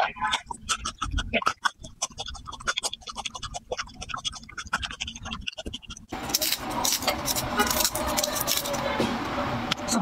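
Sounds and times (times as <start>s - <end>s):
garlic clove crunching: 0.3s - 8.8s
papery garlic skin crackling: 6.2s - 8.9s.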